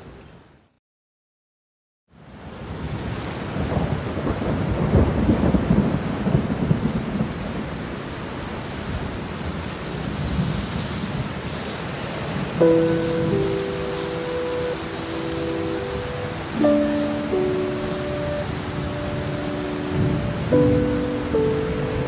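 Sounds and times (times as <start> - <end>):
steady rain: 2.1 - 22.0
thunder rumbling: 3.5 - 7.4, 12.3 - 22.0
sustained music notes: 12.6 - 22.0.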